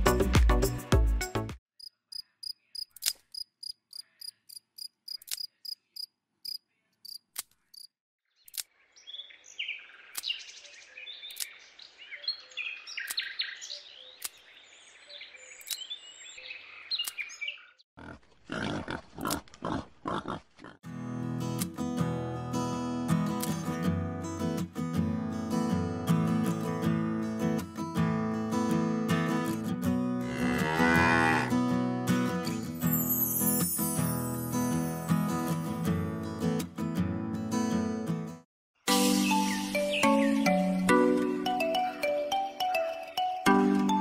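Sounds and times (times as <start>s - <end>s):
background music: 0.0s - 1.6s, 38.9s - 44.0s
sharp clicks: 2.8s - 3.3s, 15.6s - 15.8s.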